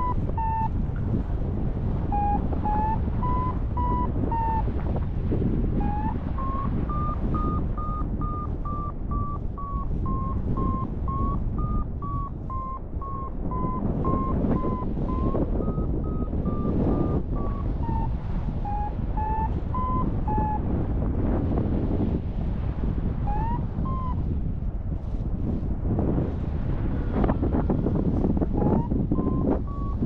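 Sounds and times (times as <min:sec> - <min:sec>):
variometer beeping: 0:00.0 - 0:00.8, 0:02.0 - 0:04.8, 0:05.8 - 0:20.6, 0:23.2 - 0:24.2, 0:28.4 - 0:30.0
wind rushing on microphone: 0:00.0 - 0:30.0.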